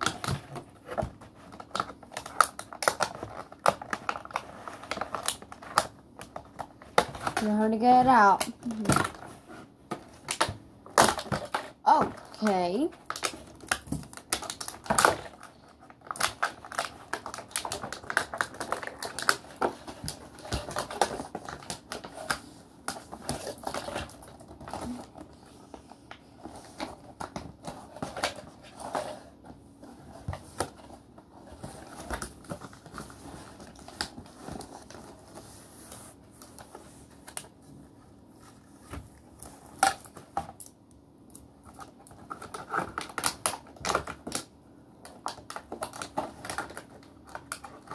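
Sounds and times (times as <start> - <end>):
packaging crinkling and clicking: 0.0 - 7.5, 9.9 - 25.4, 39.4 - 47.9.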